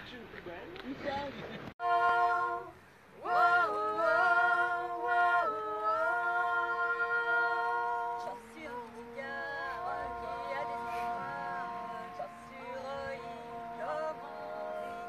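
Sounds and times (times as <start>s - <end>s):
women singing in harmony: 1.8s - 15.0s.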